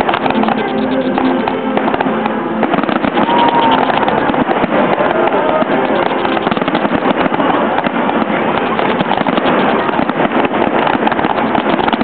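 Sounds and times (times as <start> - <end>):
fireworks cracking and banging: 0.0 - 12.0
firework whistle: 2.6 - 12.0.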